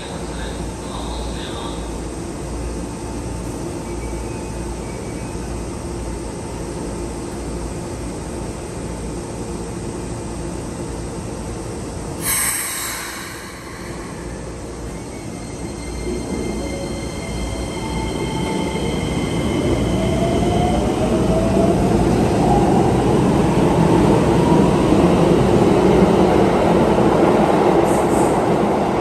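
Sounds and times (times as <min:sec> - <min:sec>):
electric train hum and rumble: 0:00.0 - 0:29.0
sharp hiss of released air: 0:12.2 - 0:14.6.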